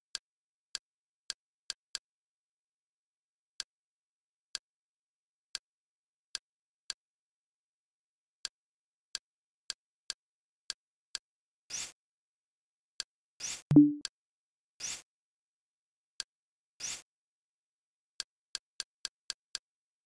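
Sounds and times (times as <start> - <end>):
short interface clicks: 13.7 - 14.0.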